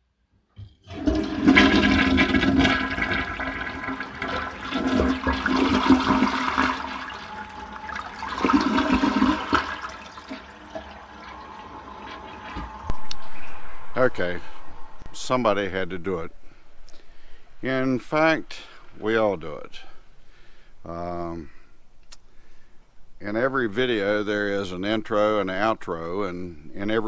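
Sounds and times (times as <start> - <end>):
toilet flushing: 0.6 - 13.6.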